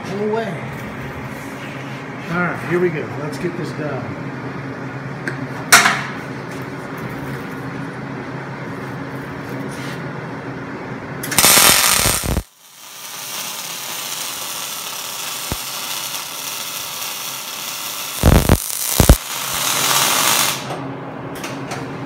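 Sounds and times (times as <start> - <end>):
steady hum: 0.0 - 21.5
welder arc crackling: 11.3 - 20.7.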